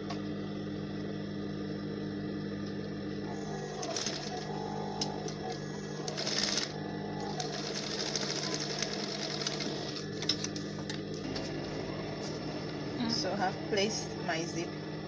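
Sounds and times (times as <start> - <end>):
sewing machine stitching: 3.5 - 10.5.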